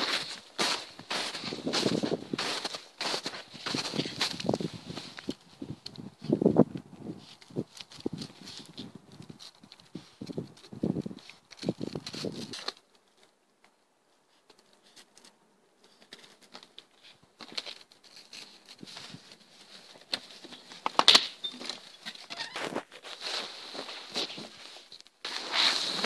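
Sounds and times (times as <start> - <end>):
footsteps crunching in snow: 0.0 - 5.5, 22.6 - 26.0.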